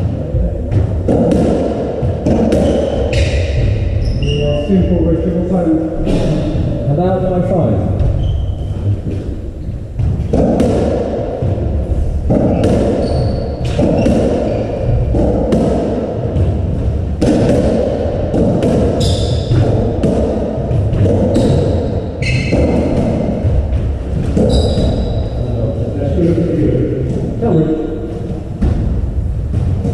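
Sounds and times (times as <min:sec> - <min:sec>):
racket hitting ball: 0:00.7 - 0:03.9, 0:09.1 - 0:25.3
shoes squeaking on wooden floor: 0:02.2 - 0:05.0, 0:07.9 - 0:10.4, 0:12.3 - 0:15.4, 0:19.0 - 0:20.0, 0:20.7 - 0:25.4
ball thudding off court walls: 0:10.0 - 0:25.1.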